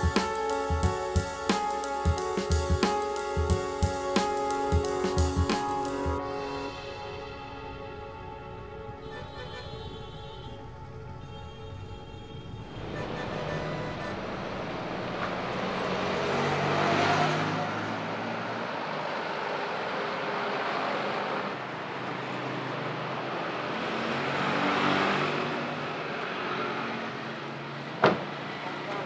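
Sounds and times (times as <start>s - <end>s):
background traffic: 0.0s - 29.0s
vehicle passing: 6.2s - 29.0s.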